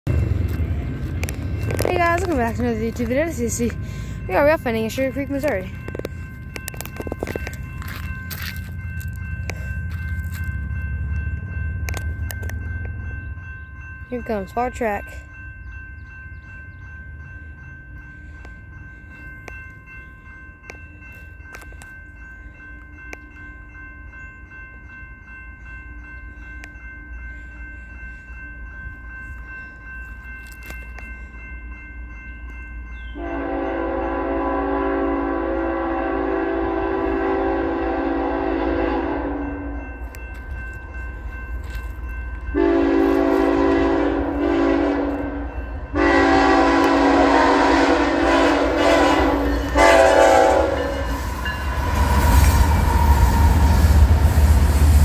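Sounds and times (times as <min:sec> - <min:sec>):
approaching train rumble: 0:00.0 - 0:55.0
crossing bell ringing: 0:00.0 - 0:55.0
locomotive air horn blasts: 0:33.2 - 0:39.7, 0:42.6 - 0:52.0.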